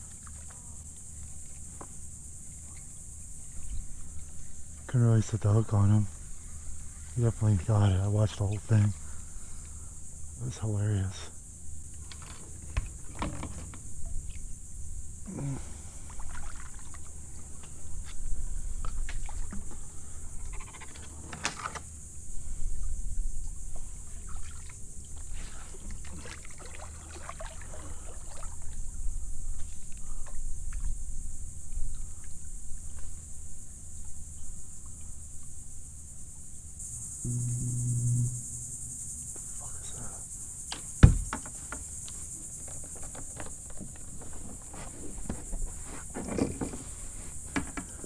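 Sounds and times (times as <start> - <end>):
paddle splashes and drips: 0.0 - 1.8, 15.9 - 17.8, 18.8 - 21.9, 23.9 - 29.0
high insect buzz: 0.0 - 48.0
paddle knocking plastic hull: 40.9 - 41.9.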